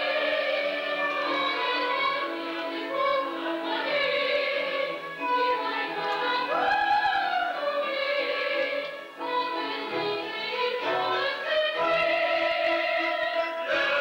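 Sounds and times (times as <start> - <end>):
chorus singing with orchestra: 0.0 - 14.0.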